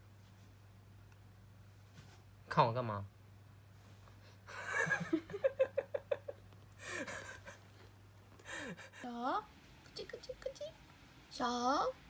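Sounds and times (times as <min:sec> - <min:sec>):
person laughing softly: 0:04.5 - 0:09.1.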